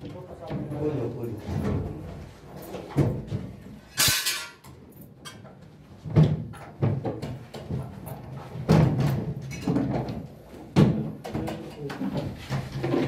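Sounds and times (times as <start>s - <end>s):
partition panels knocking and thumping: 2.8s - 4.5s, 6.0s - 13.0s.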